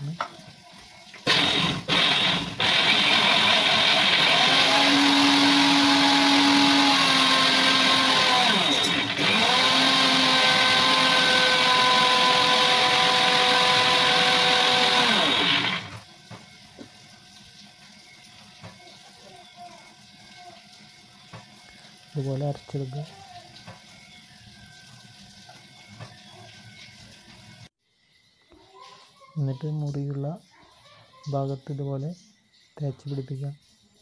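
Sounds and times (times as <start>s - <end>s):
electric mixer grinder running: 1.2s - 16.9s.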